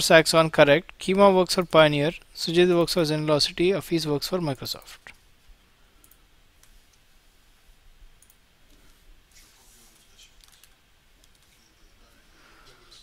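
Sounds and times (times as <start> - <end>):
keyboard and mouse clicks: 10.4 - 11.6.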